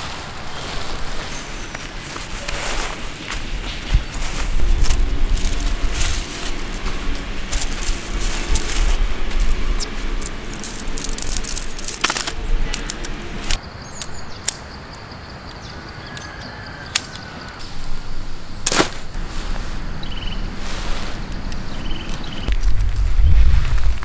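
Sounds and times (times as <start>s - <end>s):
tent pole sections clicking together: 4.8s - 14.6s.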